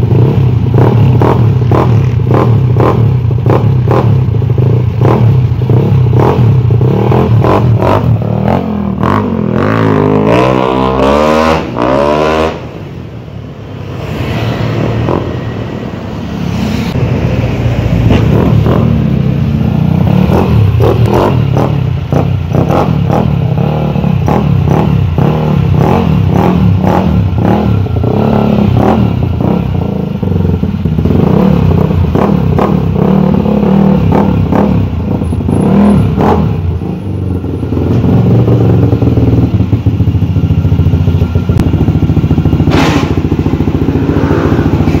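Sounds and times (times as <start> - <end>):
scooter engine running loudly: 34.0 - 45.0.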